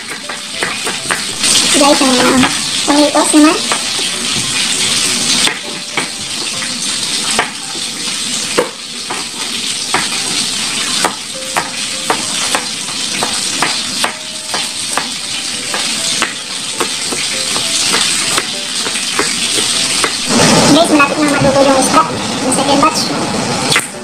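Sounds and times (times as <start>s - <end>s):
oil sizzling in a pan: 0.0s - 24.0s
knife chopping on cutting board: 11.0s - 20.2s.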